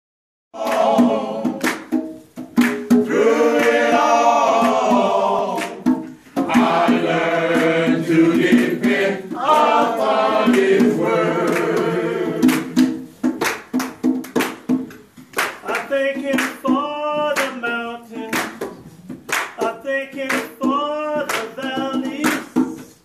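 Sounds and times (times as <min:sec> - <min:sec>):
men singing gospel in harmony: 0:00.6 - 0:01.6, 0:03.0 - 0:12.9, 0:15.6 - 0:18.5, 0:19.6 - 0:23.0
conga drum beats: 0:00.6 - 0:23.0.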